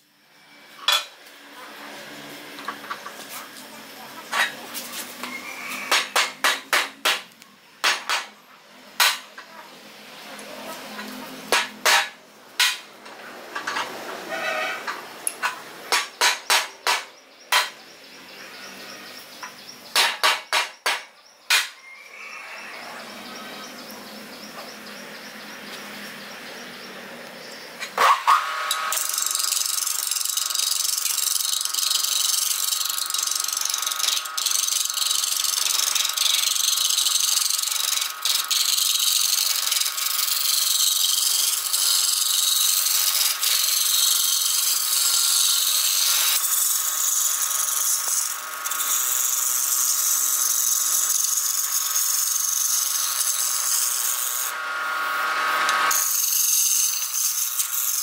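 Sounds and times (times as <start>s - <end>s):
lathe motor hum: 28.4s - 58.0s
gouge scraping wood on lathe: 28.6s - 58.0s.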